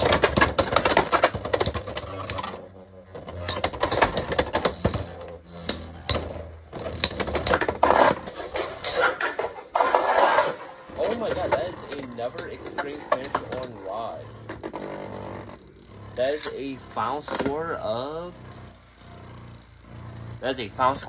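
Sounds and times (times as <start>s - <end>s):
spinning tops clattering in plastic stadium: 0.0s - 14.5s.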